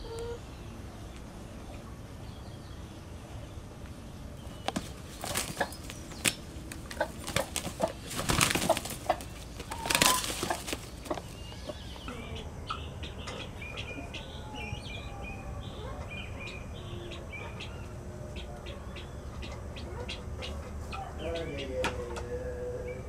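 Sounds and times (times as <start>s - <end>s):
chickens flapping wings: 4.4s - 11.4s
chickens scratching: 4.4s - 12.1s.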